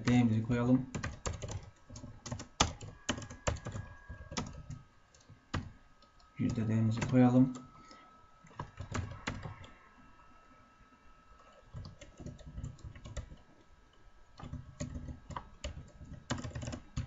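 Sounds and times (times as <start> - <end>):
computer keyboard typing: 0.9 - 5.7, 6.4 - 7.7, 8.5 - 9.7, 11.4 - 13.4, 14.4 - 17.0.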